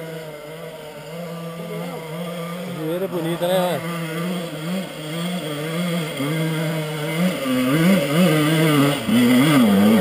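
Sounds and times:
dirt bike engine idling: 0:00.0 - 0:10.0
dirt bike engine revving: 0:00.0 - 0:10.0.

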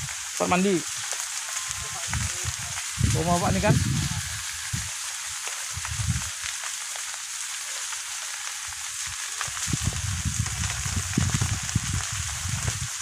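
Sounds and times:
fire crackling: 0:00.0 - 0:13.0
low rumble: 0:02.1 - 0:04.9.

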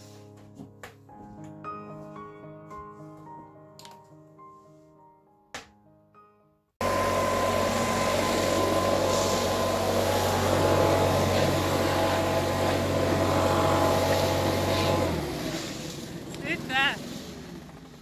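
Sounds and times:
leaf blower running: 0:06.8 - 0:18.0.

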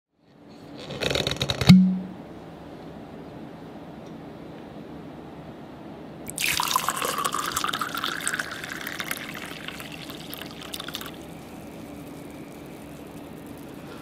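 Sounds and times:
drink pouring into glass: 0:06.3 - 0:13.8
liquid bubbling: 0:06.3 - 0:13.8.

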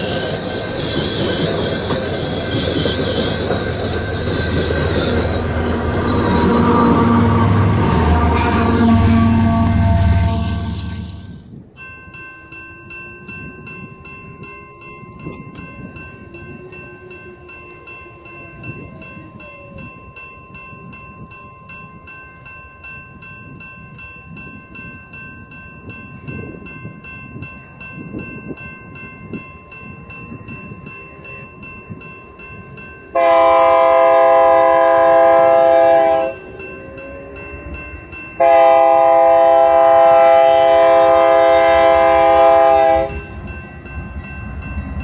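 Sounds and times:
steady high-pitched tone: 0:00.0 - 0:11.5
diesel freight train rumble: 0:00.0 - 0:11.7, 0:29.9 - 0:45.0
faint train horn: 0:05.8 - 0:11.4, 0:16.2 - 0:19.9, 0:33.1 - 0:37.7, 0:38.4 - 0:43.4.

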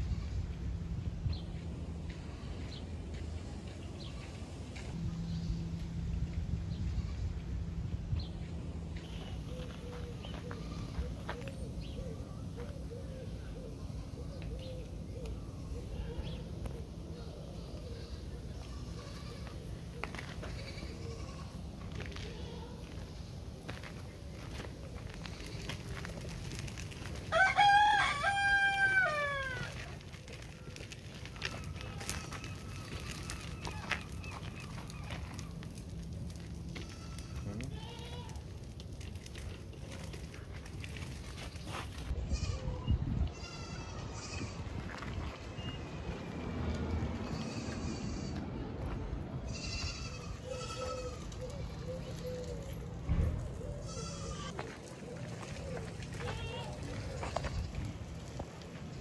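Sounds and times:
goat bleating: 0:10.3 - 0:11.2, 0:17.6 - 0:19.7, 0:20.4 - 0:22.9, 0:31.2 - 0:34.8, 0:36.8 - 0:38.5, 0:43.3 - 0:44.6, 0:47.2 - 0:48.4, 0:49.5 - 0:51.9, 0:53.8 - 0:54.6
rooster crowing: 0:27.3 - 0:29.8
low thump: 0:53.1 - 0:53.6.

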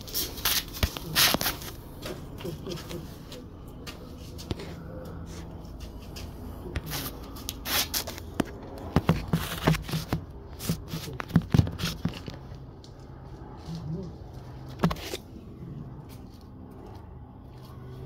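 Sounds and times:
scrapes and rustles: 0:00.0 - 0:12.6
low steady hum: 0:00.0 - 0:18.0.

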